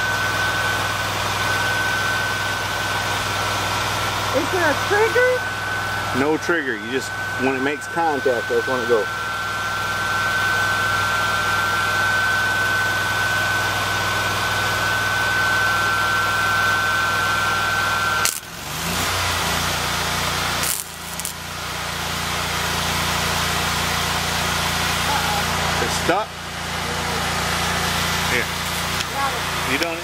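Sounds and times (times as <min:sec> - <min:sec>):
engine running: 0:00.0 - 0:30.0
stick welding whine: 0:00.0 - 0:30.0
welding arc crack: 0:18.2 - 0:18.7, 0:19.5 - 0:21.8, 0:28.4 - 0:29.2.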